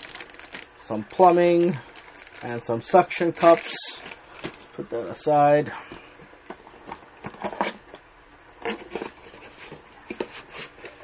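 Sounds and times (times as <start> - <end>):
plastic packaging crinkling: 0.0 - 4.7.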